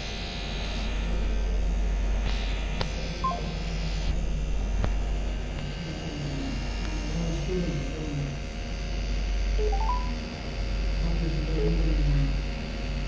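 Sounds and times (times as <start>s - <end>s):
two-note phone beep: 9.6s - 10.2s.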